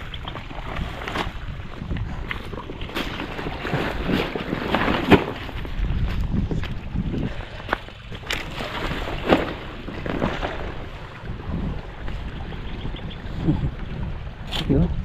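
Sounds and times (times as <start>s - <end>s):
wind rumbling on microphone: 0.0s - 15.0s
footsteps crunching on stubble: 5.2s - 6.9s.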